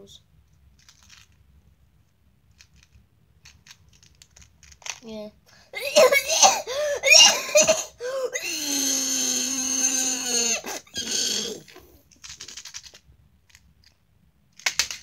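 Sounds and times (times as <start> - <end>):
long vocal cry: 5.7 - 11.8.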